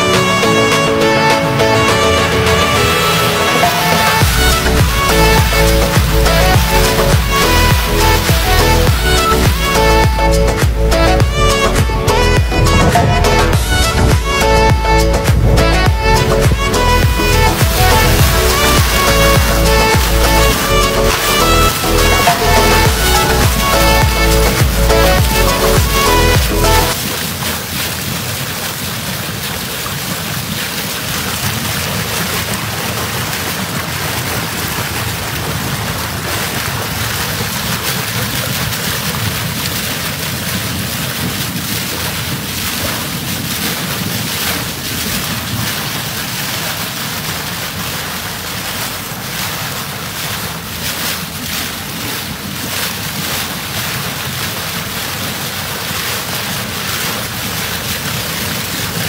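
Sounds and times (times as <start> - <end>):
water rushing in boat wake: 0.0 - 59.0
wind buffeting microphone: 4.2 - 47.9.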